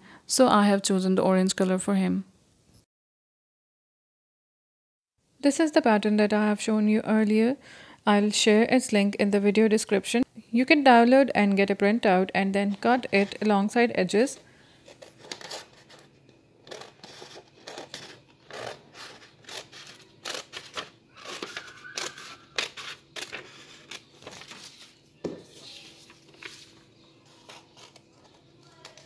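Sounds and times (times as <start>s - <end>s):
scissors snipping paper: 16.7s - 24.4s.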